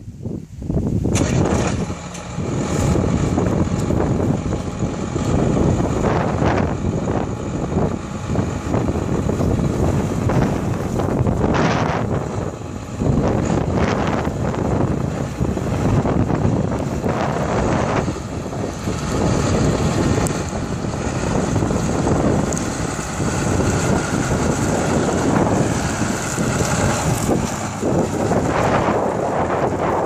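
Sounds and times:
tractor diesel engine running: 0.0s - 30.0s
wind buffeting microphone: 0.0s - 30.0s.

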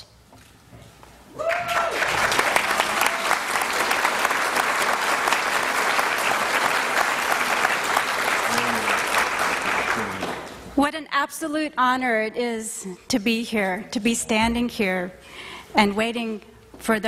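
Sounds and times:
audience applauding: 1.4s - 10.6s.

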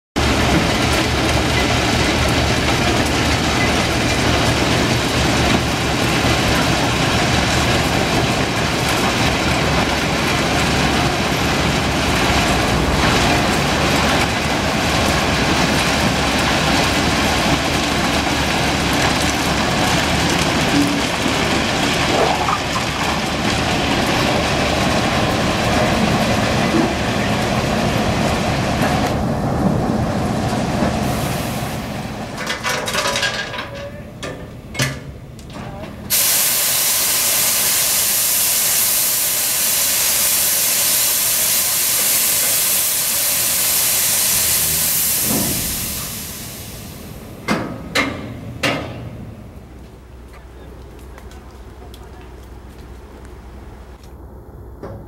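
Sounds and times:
train rumbling and rattling on rails: 0.2s - 55.0s.

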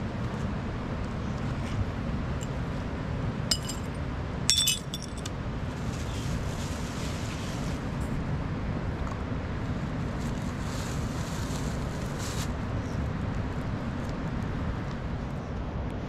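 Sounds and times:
steady low rumble: 0.0s - 6.9s
ringing clinks: 3.5s - 5.3s.

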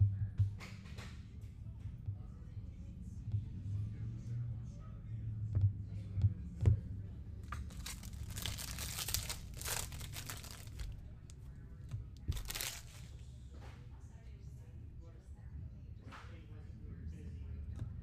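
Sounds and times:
foil wrapper crinkling and tearing: 7.7s - 11.0s, 12.2s - 13.1s.

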